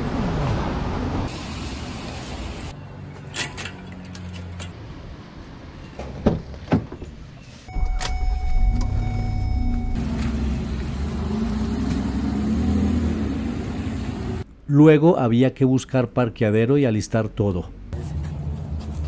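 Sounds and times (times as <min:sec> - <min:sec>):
steady high tone: 0:07.7 - 0:10.1.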